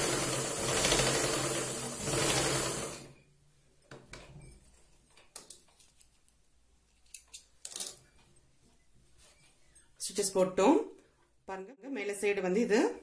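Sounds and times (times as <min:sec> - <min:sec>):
sewing machine stitching: 0:00.0 - 0:03.2
small clicks and cloth rustles: 0:03.7 - 0:10.0.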